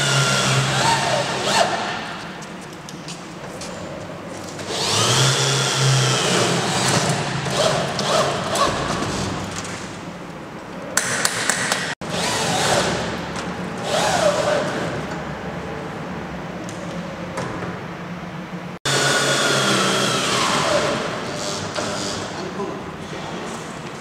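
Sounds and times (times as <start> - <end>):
power tool whirring: 4.6 - 8.6.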